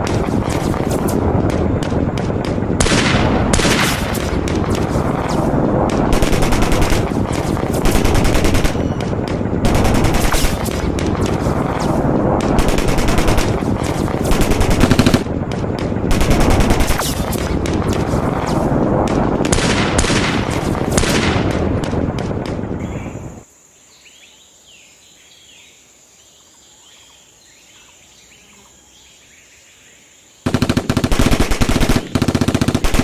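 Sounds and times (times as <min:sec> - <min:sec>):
background gunfire: 0:00.0 - 0:23.4, 0:30.4 - 0:33.0
automatic gunfire bursts: 0:02.8 - 0:05.2, 0:06.1 - 0:11.5, 0:12.4 - 0:15.3, 0:16.1 - 0:17.6, 0:30.4 - 0:33.0.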